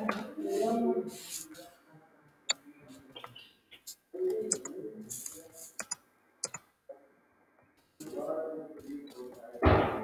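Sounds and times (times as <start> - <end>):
keyboard typing clicks: 4.5 - 6.6.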